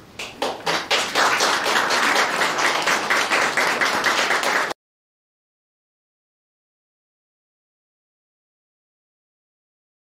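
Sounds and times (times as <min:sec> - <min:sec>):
audience applauding: 0:00.2 - 0:04.8.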